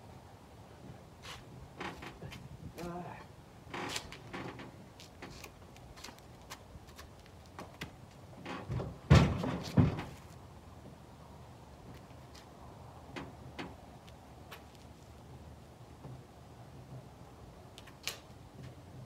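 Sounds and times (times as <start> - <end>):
clunks and knocks of atv: 7.8 - 10.2.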